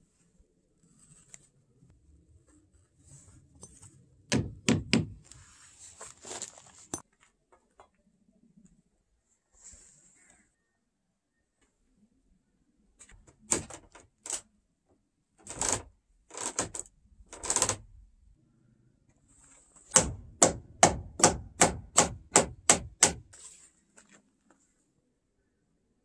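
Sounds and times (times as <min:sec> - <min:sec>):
hammer striking wood: 0:04.3 - 0:05.2, 0:19.9 - 0:23.3.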